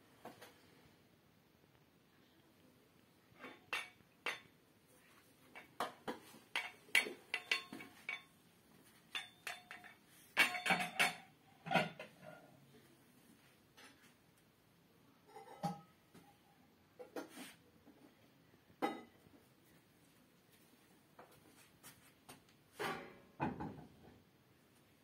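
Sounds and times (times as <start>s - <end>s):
tableware clinking: 3.4s - 4.5s, 5.5s - 8.4s, 9.1s - 12.4s, 15.3s - 15.9s.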